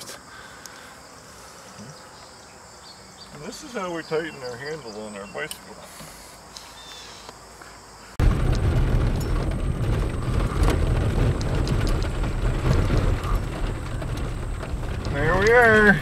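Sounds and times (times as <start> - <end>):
knocks and rattles: 8.2 - 16.0
truck rumbling on dirt track: 8.2 - 16.0.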